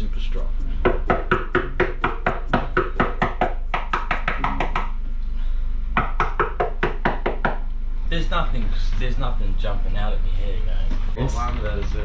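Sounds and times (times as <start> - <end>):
rapid knocking on fiberglass: 0.8 - 5.0, 6.0 - 7.6.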